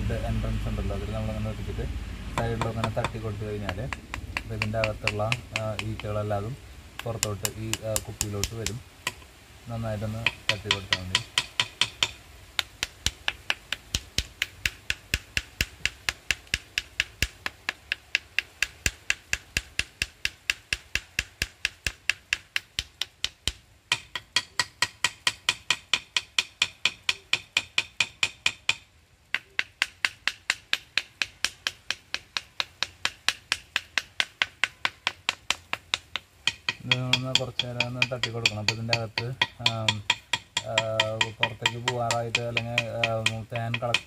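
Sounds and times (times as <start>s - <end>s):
knife tapping on wooden box: 29.4s - 44.0s.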